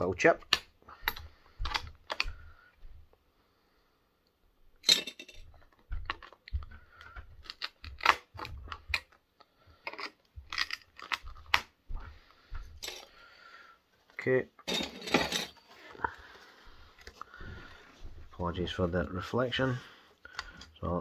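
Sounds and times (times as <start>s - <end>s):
pliers clicking and scraping metal: 9.8s - 11.6s.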